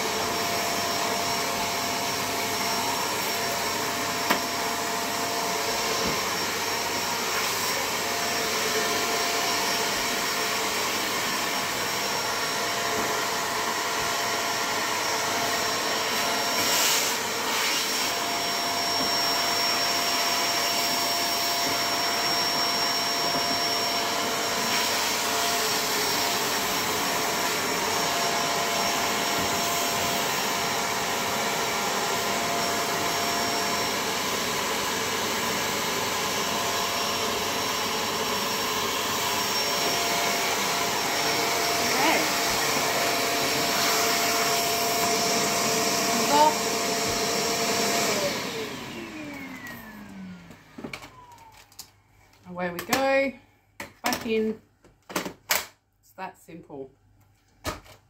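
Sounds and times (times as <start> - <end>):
vacuum cleaner running: 0.0 - 53.4.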